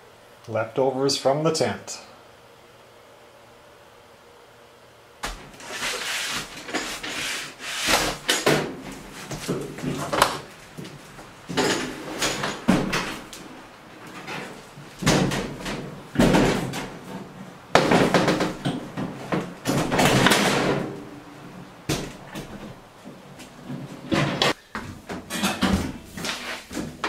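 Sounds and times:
metal cabinet knocking and scraping: 11.5 - 13.3, 14.1 - 21.2, 23.6 - 26.1.

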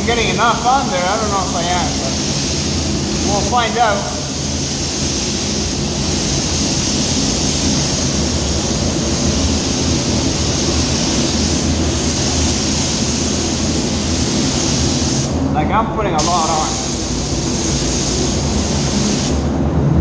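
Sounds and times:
paint spray gun hissing: 0.0 - 15.4, 16.2 - 19.4
low hum: 16.8 - 20.0.

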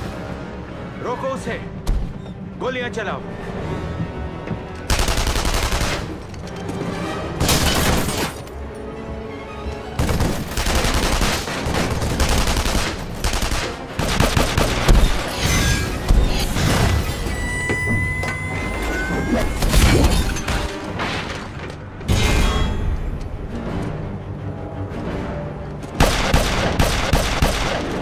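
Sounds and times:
automatic gunfire bursts: 4.9 - 6.0.

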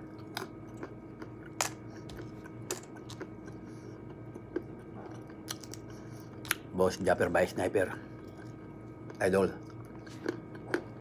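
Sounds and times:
faint steady hum: 0.0 - 11.0
nuts being shelled and chewed: 0.2 - 6.6.

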